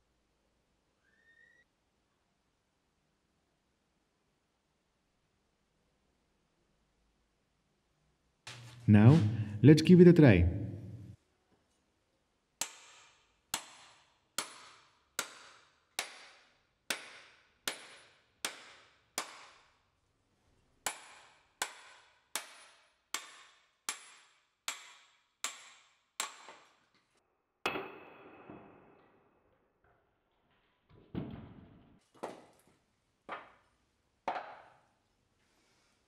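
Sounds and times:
sledgehammer striking hatchet: 27.6s - 28.6s.

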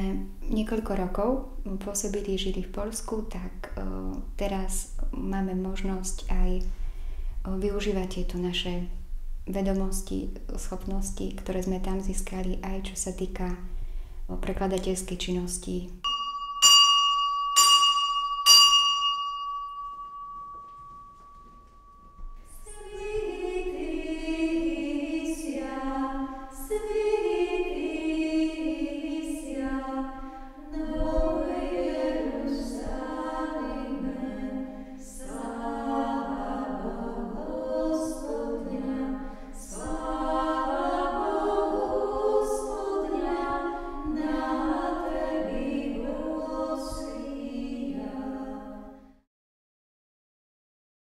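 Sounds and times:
unaccompanied choir chanting: 22.5s - 49.2s.

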